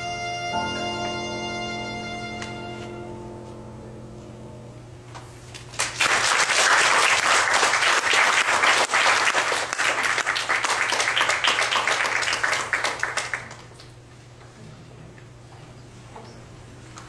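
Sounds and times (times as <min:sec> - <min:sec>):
audience applauding: 0:05.6 - 0:14.0.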